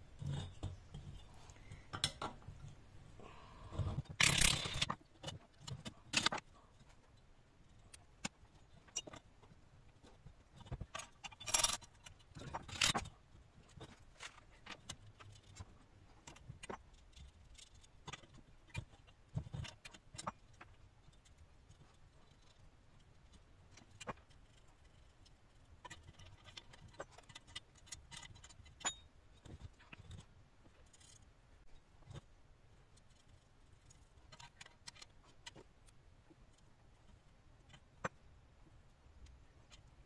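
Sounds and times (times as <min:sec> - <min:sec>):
small metal parts clinking: 0:03.8 - 0:06.8, 0:10.0 - 0:13.1, 0:23.7 - 0:30.2.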